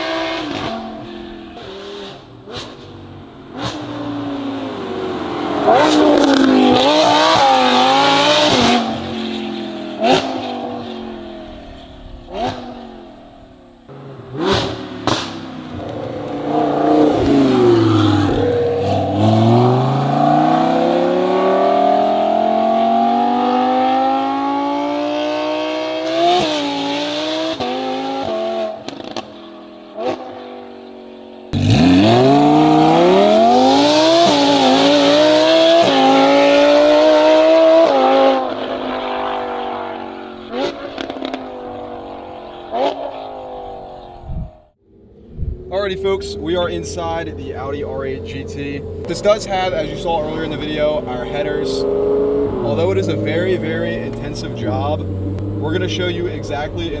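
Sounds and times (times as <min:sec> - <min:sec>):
sports car engine revving: 0:00.0 - 0:57.0
exhaust pops: 0:10.0 - 0:16.4.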